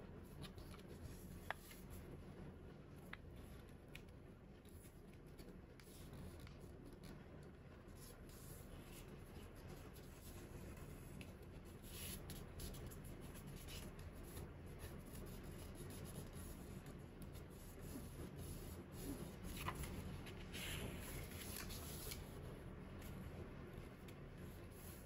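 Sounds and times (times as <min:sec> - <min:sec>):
paper rustling: 0:00.2 - 0:02.0, 0:17.8 - 0:22.4
paper scraping: 0:17.8 - 0:22.4.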